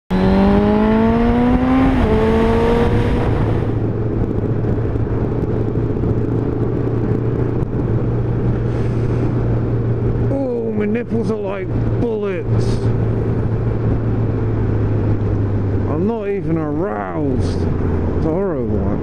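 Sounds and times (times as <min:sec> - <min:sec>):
motorcycle engine revving: 0:00.1 - 0:08.4
wind and road noise: 0:00.1 - 0:19.0.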